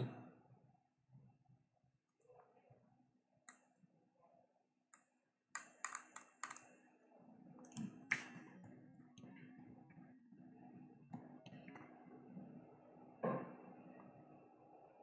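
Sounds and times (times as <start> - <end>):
keyboard and mouse clicks: 5.6 - 6.7, 7.6 - 8.4.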